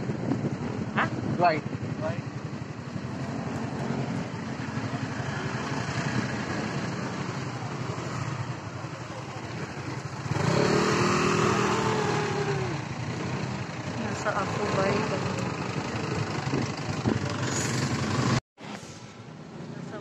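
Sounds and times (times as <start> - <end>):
motorcycle engine idling and revving: 0.0 - 18.4.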